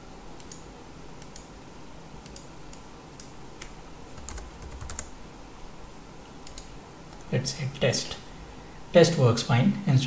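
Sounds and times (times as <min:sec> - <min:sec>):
keyboard keys clicking: 0:03.2 - 0:05.1.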